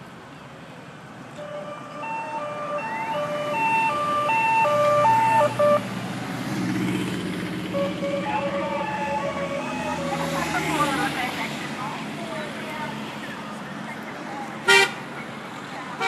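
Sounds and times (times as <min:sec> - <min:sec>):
two-tone siren: 0:01.4 - 0:05.8, 0:07.7 - 0:10.3.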